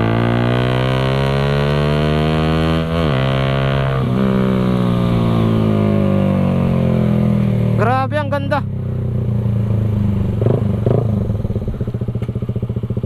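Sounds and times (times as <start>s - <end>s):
motorcycle engine running loud: 0.0s - 13.0s.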